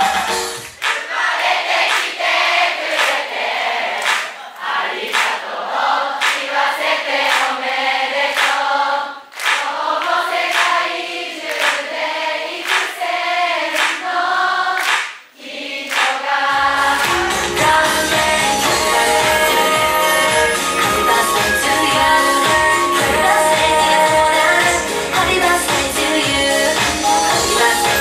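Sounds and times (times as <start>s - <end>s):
many voices singing together: 0.0s - 28.0s
backing track with heavy bass beat: 16.6s - 28.0s.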